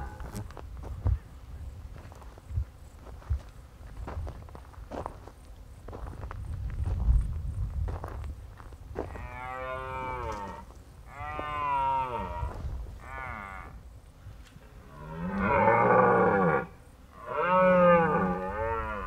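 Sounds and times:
deer stags roaring: 0:14.8 - 0:19.0.

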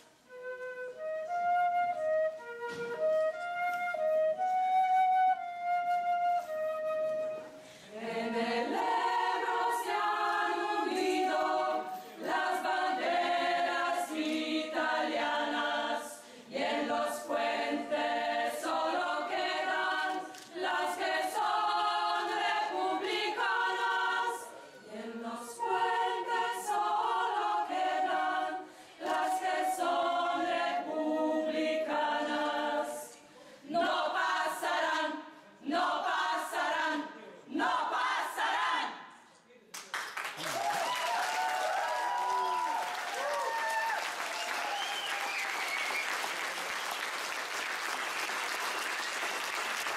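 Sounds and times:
women's choir singing: 0:07.8 - 0:39.1.

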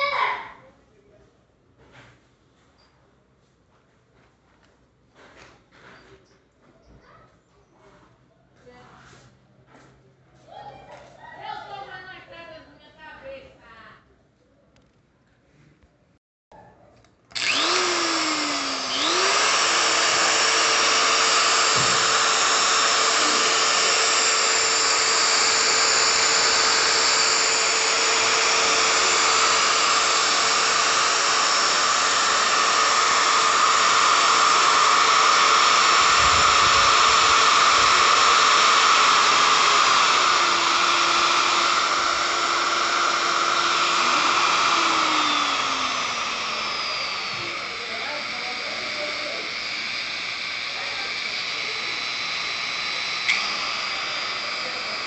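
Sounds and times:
die grinder whining: 0:17.3 - 0:55.0
grinder spinning down: 0:17.3 - 0:55.0.

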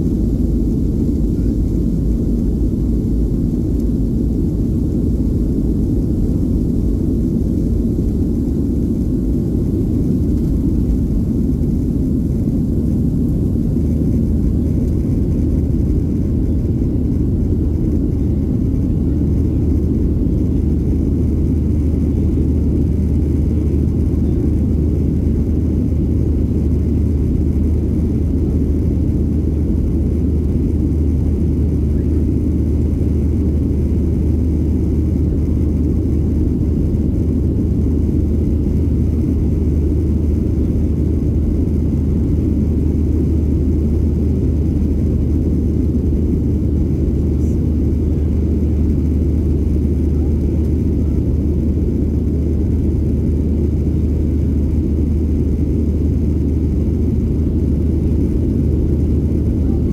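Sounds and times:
jet engines droning: 0:00.0 - 0:59.9.

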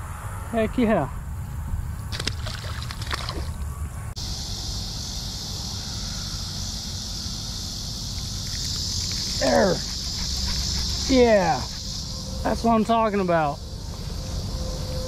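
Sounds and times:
high insect chorus: 0:00.0 - 0:15.0
fish splashing in water: 0:02.1 - 0:03.6.

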